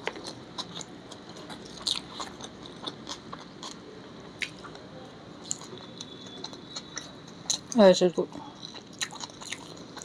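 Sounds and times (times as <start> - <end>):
person chewing rice: 0.0 - 3.8, 5.4 - 7.8, 8.6 - 10.0.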